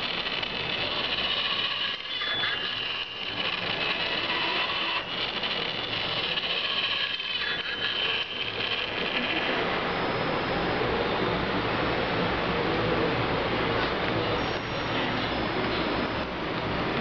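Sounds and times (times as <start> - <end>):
small motor whirring and rattling: 0.0 - 10.8.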